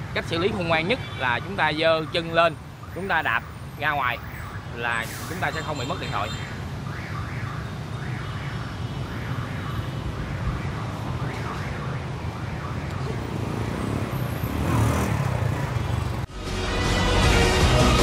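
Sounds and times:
scooter engines running: 13.0s - 16.3s.

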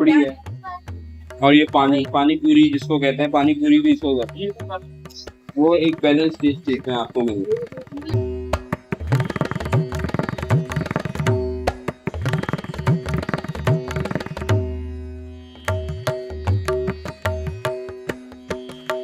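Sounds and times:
fast hand drumming: 0.0s - 14.6s.

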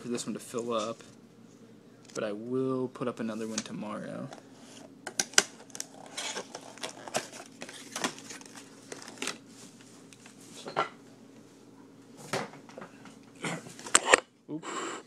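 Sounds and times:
cardboard and foil crinkling: 5.4s - 9.4s.

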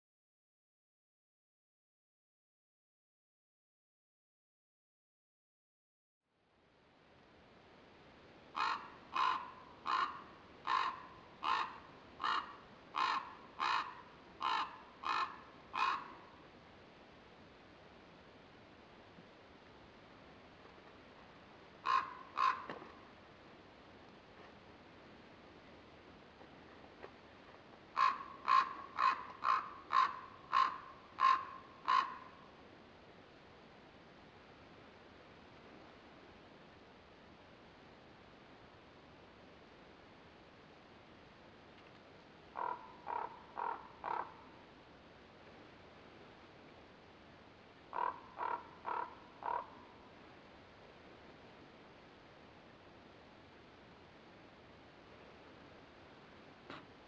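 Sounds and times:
raven calling: 8.5s - 16.4s, 21.8s - 23.1s, 27.9s - 32.5s, 42.5s - 44.6s, 47.9s - 50.0s.

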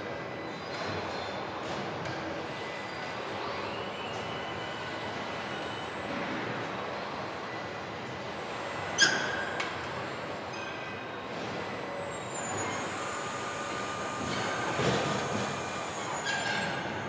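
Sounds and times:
high steady whine: 11.6s - 17.0s.

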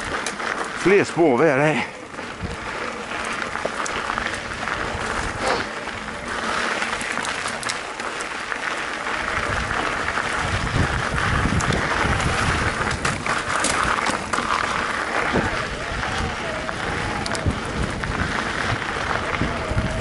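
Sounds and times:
bike clicks and rattles: 0.0s - 20.0s
bike tyres rolling on dirt: 0.0s - 20.0s.

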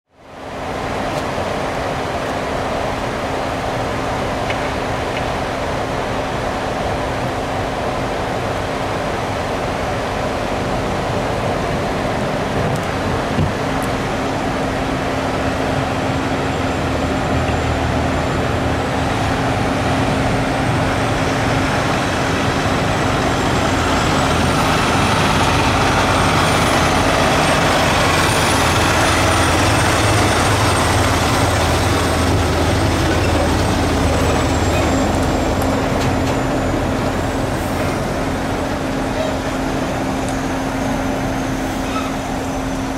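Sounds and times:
truck diesel engine rumbling: 2.6s - 42.9s.

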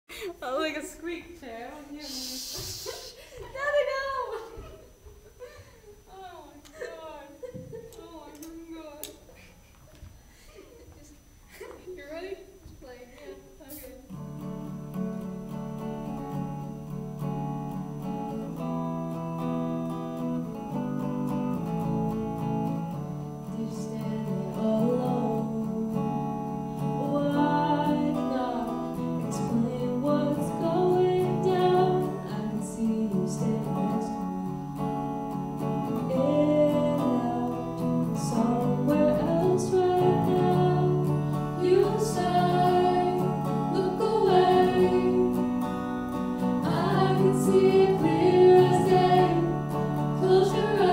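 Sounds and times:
female vocals: 23.5s - 26.0s, 27.0s - 34.2s, 36.0s - 45.4s.

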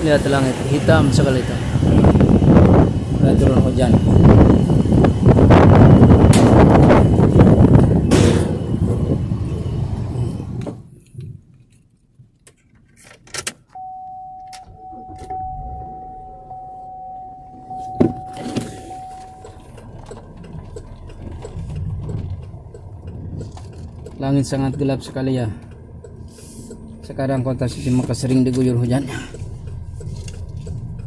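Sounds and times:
passing traffic hum: 0.0s - 11.5s, 13.8s - 31.0s
steady electronic tone: 13.8s - 21.7s.

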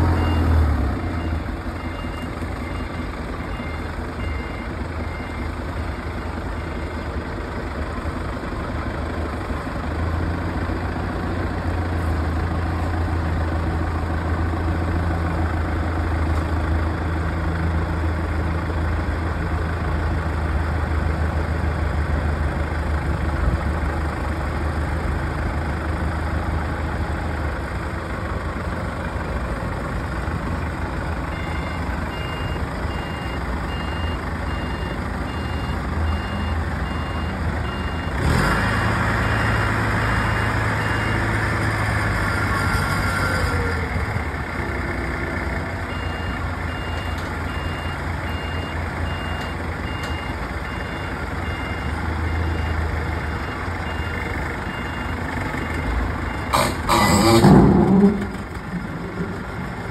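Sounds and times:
reversing alarm beeping: 0.1s - 5.6s, 31.3s - 38.2s, 45.9s - 57.2s
heavy vehicle engine revving: 35.3s - 48.4s, 50.9s - 59.9s.

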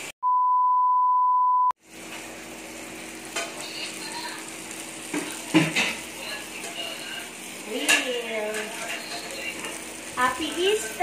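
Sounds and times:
loud beep tone: 0.2s - 1.7s
meat sizzling on grill plate: 1.8s - 11.0s.

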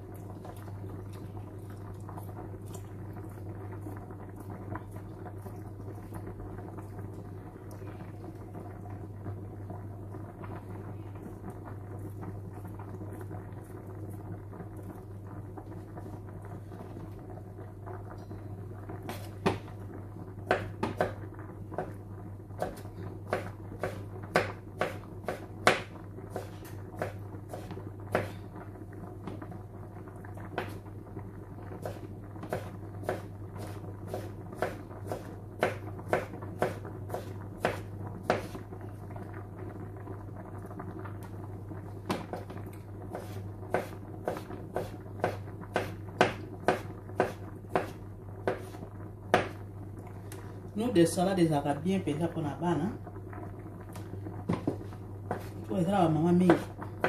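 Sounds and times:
low steady hum: 0.0s - 57.0s
pasta pot bubbling: 0.0s - 57.0s
knife chopping on wooden board: 22.6s - 28.3s, 43.2s - 49.6s.

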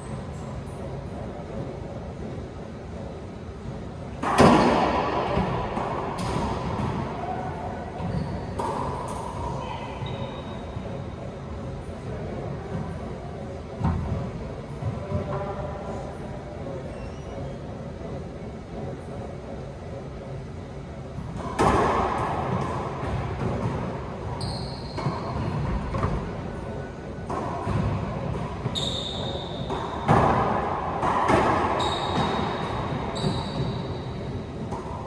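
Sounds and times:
sneakers squeaking on hardwood: 8.0s - 8.9s, 24.3s - 26.2s, 28.5s - 30.4s, 31.4s - 34.5s.

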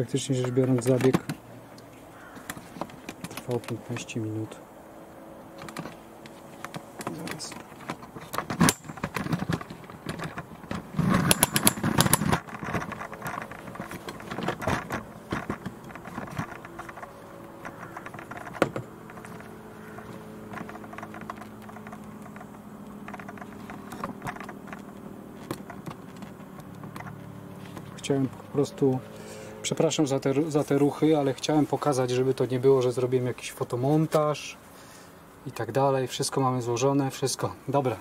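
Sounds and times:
faint steady hum: 0.0s - 38.0s
camera handling clicks and knocks: 0.7s - 3.8s, 5.5s - 28.0s.

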